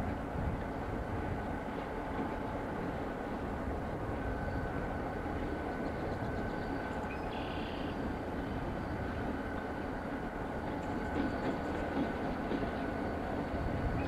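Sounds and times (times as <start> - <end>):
distant diesel locomotives: 0.0 - 14.0.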